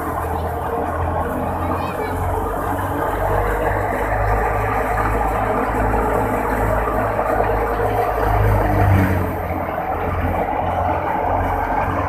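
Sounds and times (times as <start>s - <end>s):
tractor engine droning: 0.0s - 12.0s.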